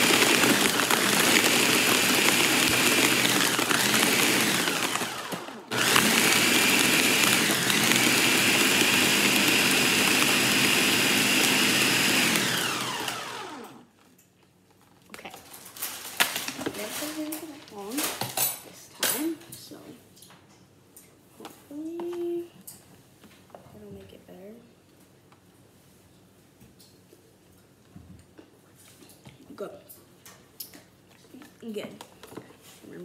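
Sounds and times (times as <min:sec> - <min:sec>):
blender motor running: 0:00.0 - 0:13.8.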